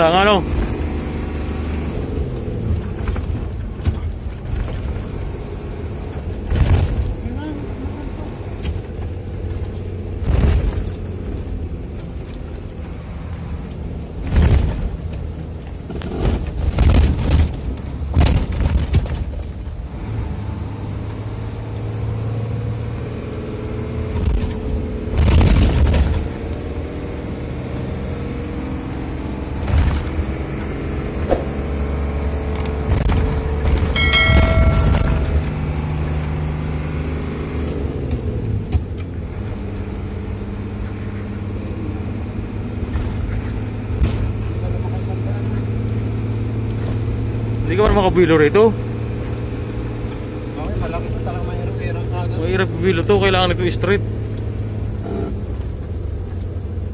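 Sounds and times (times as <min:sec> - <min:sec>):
truck diesel engine: 0:00.0 - 0:56.9
thumps and rattles: 0:06.2 - 0:07.2, 0:08.6 - 0:12.6, 0:14.1 - 0:19.8
brief high tone: 0:34.0 - 0:35.8.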